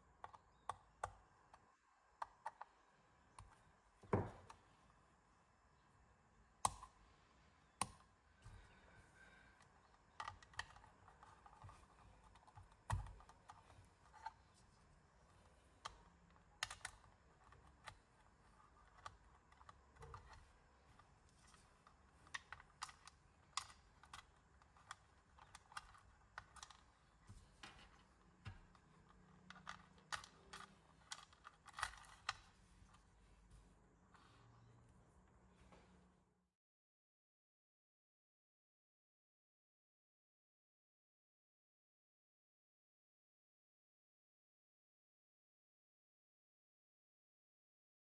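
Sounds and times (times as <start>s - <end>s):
small metal parts clicking: 21.4s - 27.0s, 27.6s - 32.5s.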